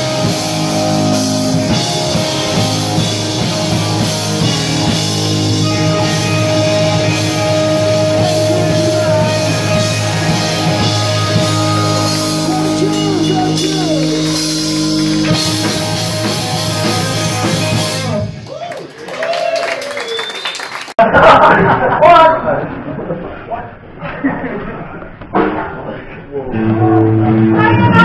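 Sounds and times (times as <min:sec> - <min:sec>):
electric guitars sustained chords: 0:00.0 - 0:18.4, 0:26.5 - 0:28.0
bass guitar: 0:00.0 - 0:18.6, 0:25.1 - 0:28.0
drums: 0:00.0 - 0:21.0, 0:25.1 - 0:25.9, 0:26.6 - 0:28.0
person singing: 0:05.6 - 0:14.8.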